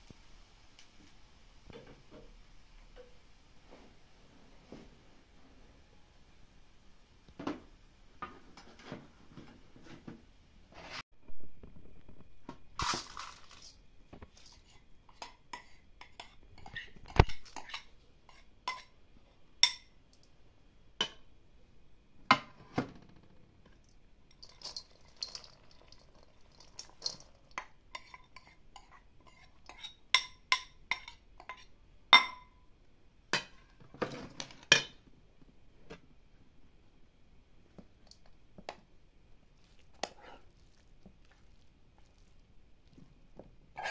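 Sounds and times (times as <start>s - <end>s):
cookware and utensils clinking: 12.8s - 19.0s, 19.6s - 20.0s, 24.3s - 32.7s, 33.4s - 35.0s.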